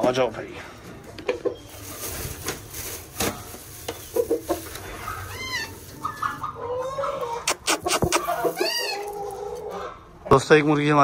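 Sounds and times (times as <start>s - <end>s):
chickens clucking: 0.9s - 2.2s, 3.2s - 11.0s
chicken calls: 3.9s - 10.5s
grain rattling into feeder: 7.8s - 9.4s.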